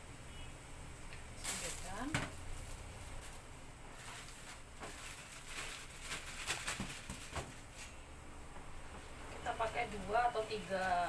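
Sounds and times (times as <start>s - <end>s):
plastic bag rustling and crinkling: 1.4s - 8.0s, 9.3s - 11.0s.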